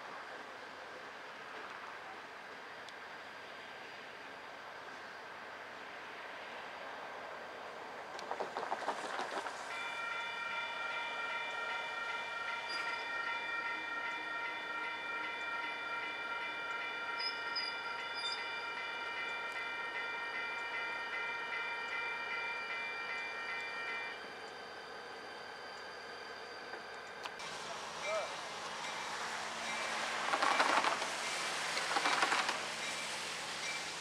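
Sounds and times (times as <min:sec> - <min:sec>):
railroad warning signal tones: 0:09.7 - 0:34.0.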